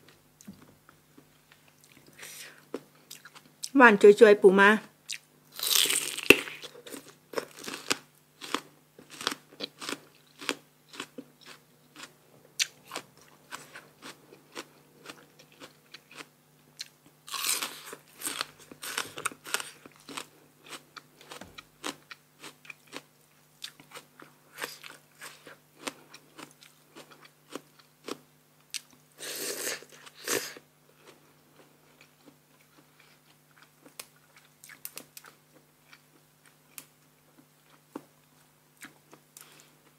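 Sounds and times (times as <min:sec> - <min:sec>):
person biting and chewing crunchily: 0:05.1 - 0:23.0.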